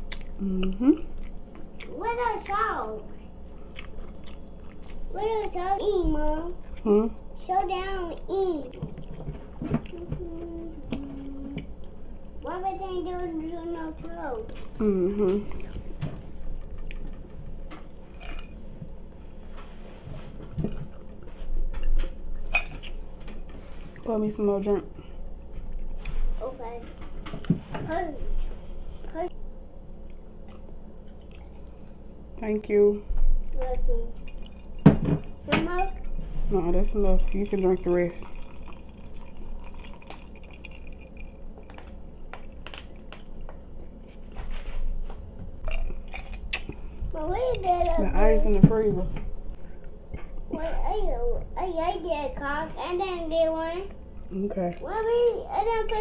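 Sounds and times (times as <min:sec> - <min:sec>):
person gulping water: 0:38.2 - 0:41.4.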